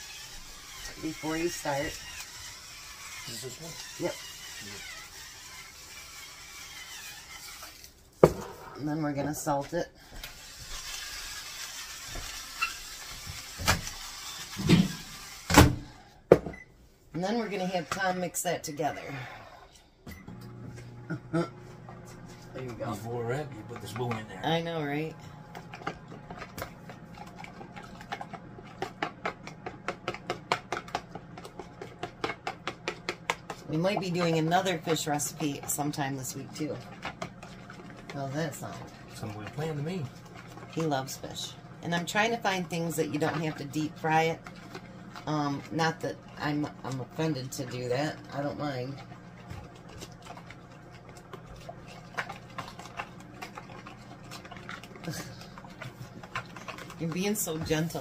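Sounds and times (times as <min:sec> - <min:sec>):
spoon scraping plastic bowl: 0:21.7 - 0:58.0.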